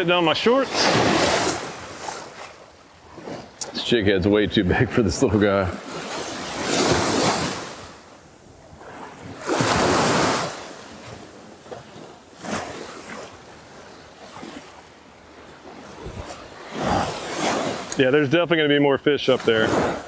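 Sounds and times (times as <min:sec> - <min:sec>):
small surf washing on shore: 0:00.0 - 0:20.0
wind on microphone: 0:00.7 - 0:13.3, 0:15.6 - 0:18.0.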